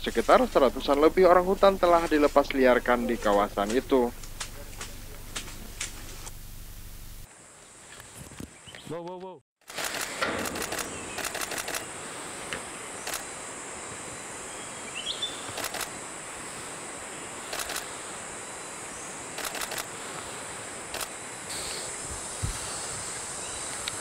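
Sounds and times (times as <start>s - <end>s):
high insect drone: 0.0s - 8.7s, 9.7s - 24.0s
sharp clicks: 9.6s - 11.9s, 13.0s - 13.3s, 15.5s - 15.9s, 17.5s - 17.8s, 19.4s - 19.9s, 20.9s - 21.1s.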